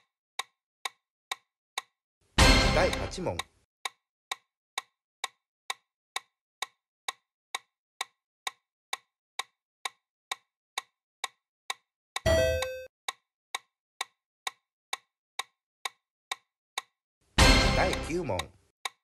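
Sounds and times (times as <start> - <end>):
countdown timer ticking: 2.4 - 3.5, 12.2 - 12.9, 17.4 - 18.5
short multi-tone ringing: 12.3 - 12.9.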